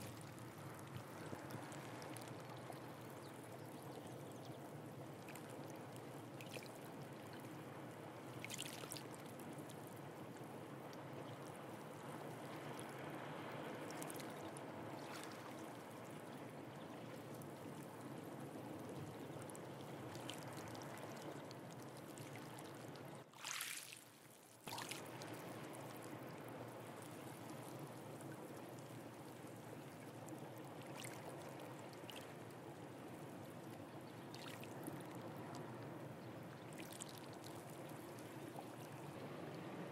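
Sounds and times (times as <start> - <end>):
seawater washing over rocks: 23.3 - 26.1.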